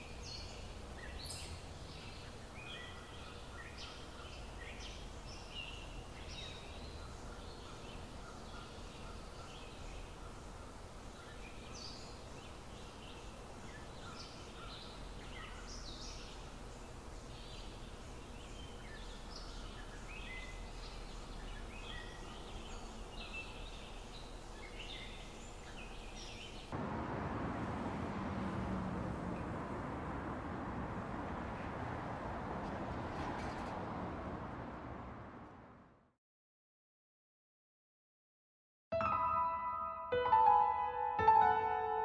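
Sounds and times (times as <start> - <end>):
birds chirping: 0.0 - 26.8
steady background hiss: 0.0 - 28.3
street noise: 26.7 - 36.0.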